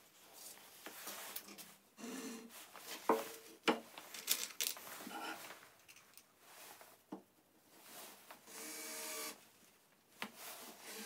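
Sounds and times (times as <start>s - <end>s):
rustling: 2.5s - 7.0s.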